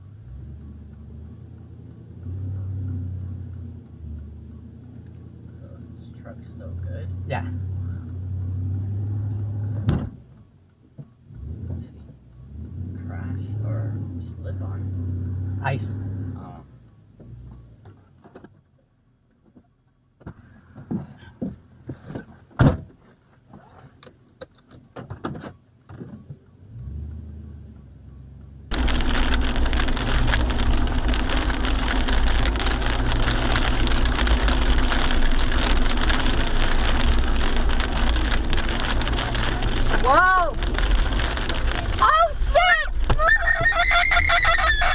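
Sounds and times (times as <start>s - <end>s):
car driving road and wind noise: 0.0s - 44.9s
scattered clicks and knocks: 17.2s - 18.7s, 19.3s - 26.5s.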